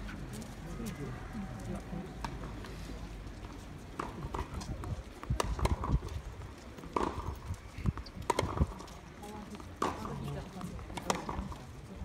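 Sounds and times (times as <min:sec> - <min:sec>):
tennis balls hit and bouncing: 0:03.4 - 0:11.9.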